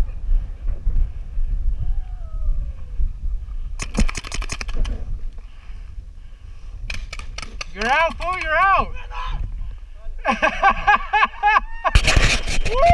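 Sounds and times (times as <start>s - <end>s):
wind rumbling on microphone: 0.0s - 12.9s
paintball marker firing rapidly: 3.8s - 5.0s.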